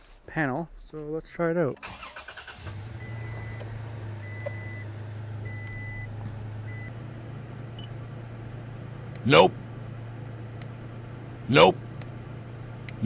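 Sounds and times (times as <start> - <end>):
engine cranking and idling: 1.8 - 13.0
dashboard warning chime beeps: 3.0 - 6.9.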